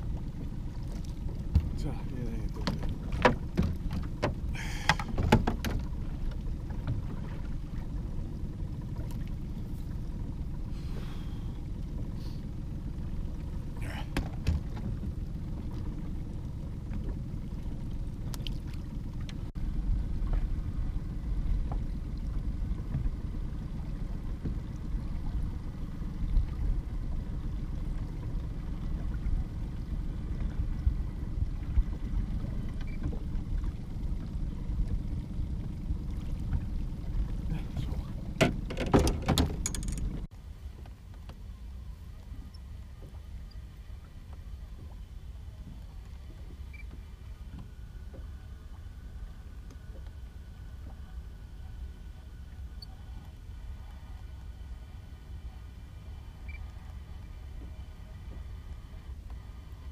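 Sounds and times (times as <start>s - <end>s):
wind rumble: 0.0s - 40.3s
water against a boat: 0.0s - 59.9s.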